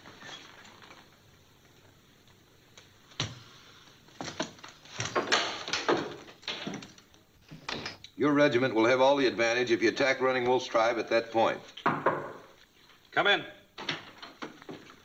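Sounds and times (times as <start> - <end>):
wooden door opening and shutting: 4.2 - 8.0, 13.8 - 15.0.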